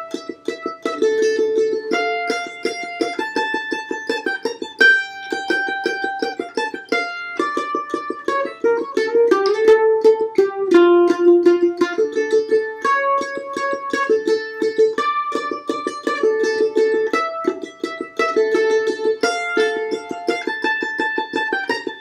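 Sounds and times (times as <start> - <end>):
mandolin waltz: 0.0 - 22.0.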